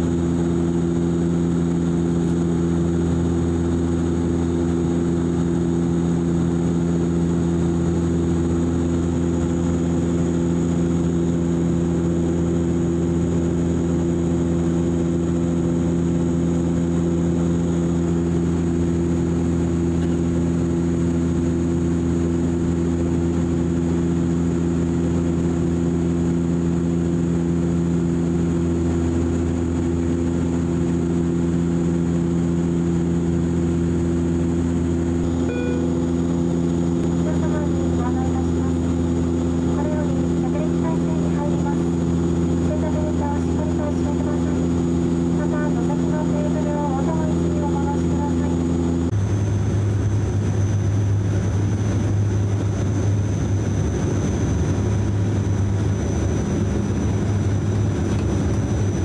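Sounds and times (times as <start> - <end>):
airplane cabin drone: 0.0 - 59.0
thin high tone: 35.3 - 36.2.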